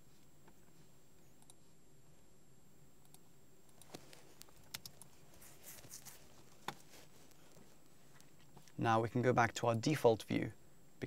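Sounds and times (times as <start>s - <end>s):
faint room hum: 0.0s - 11.0s
keyboard and mouse clicks: 3.0s - 5.1s.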